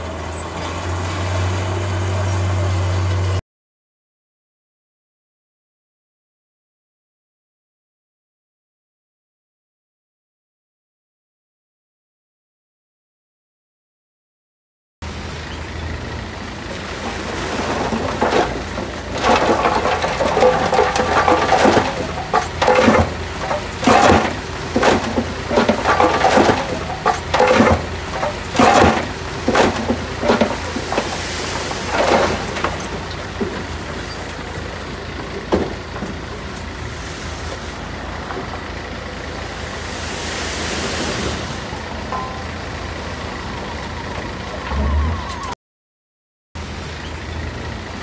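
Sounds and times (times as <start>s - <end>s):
diesel machinery drone: 0.0s - 3.4s, 15.0s - 45.6s, 46.6s - 48.0s.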